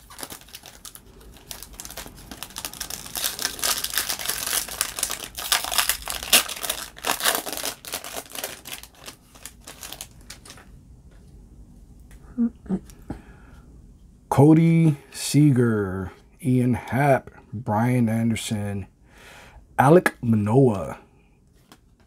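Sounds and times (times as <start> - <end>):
foil wrapper crinkling and tearing: 0.0 - 10.7.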